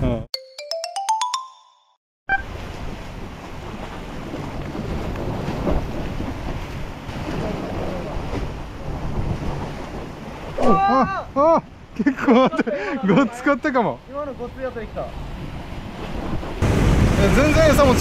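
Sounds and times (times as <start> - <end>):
sea waves washing on concrete: 2.4 - 13.3, 14.2 - 18.0
wind buffeting microphone: 14.8 - 18.0.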